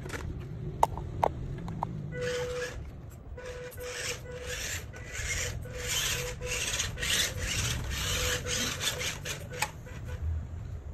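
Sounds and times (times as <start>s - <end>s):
toy truck motor whirring: 2.2s - 10.2s.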